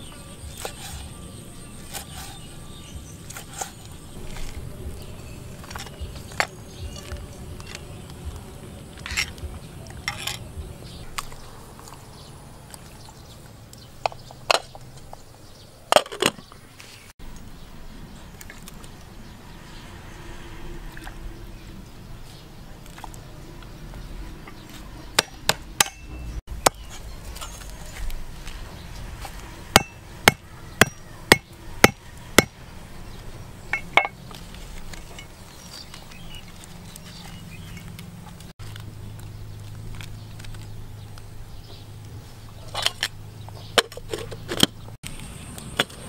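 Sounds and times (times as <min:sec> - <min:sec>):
low outdoor background: 0:00.0 - 0:46.0
clinks in metal pot: 0:33.7 - 0:34.2.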